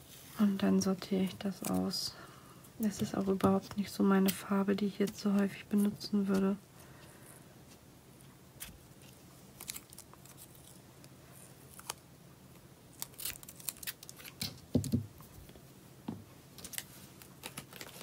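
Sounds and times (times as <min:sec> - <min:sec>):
tape rolls and paper rustling: 0:16.6 - 0:18.0.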